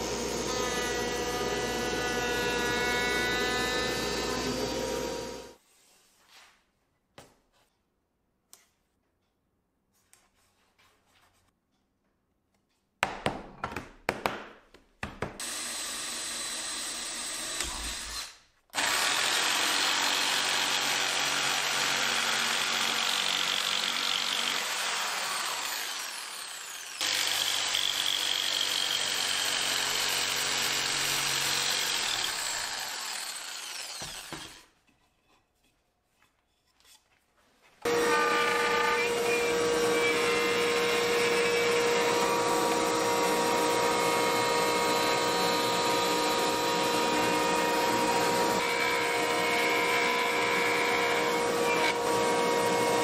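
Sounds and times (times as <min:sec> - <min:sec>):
router high whine: 0:00.0 - 0:05.6.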